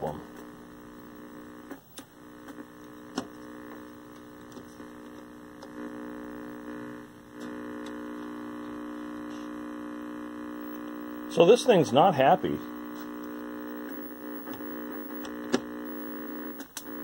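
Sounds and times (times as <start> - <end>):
sharp electrical clicks and snaps: 0.0 - 9.4, 12.8 - 17.0
television buzzing hum: 0.0 - 17.0.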